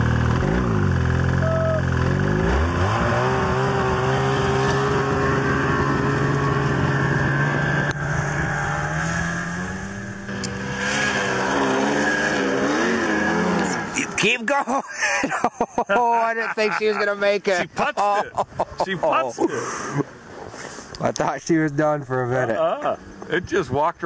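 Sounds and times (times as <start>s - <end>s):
snowmobile engine revving: 0.0s - 16.2s.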